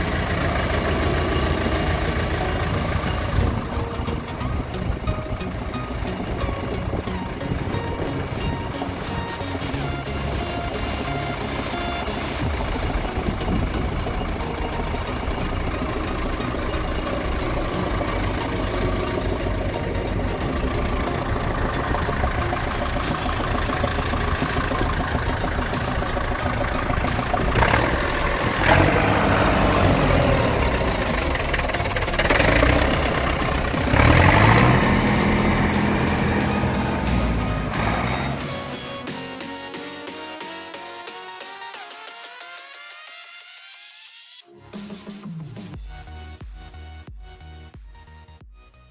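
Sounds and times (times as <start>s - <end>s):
tractor diesel engine idling and revving: 0.0s - 41.8s.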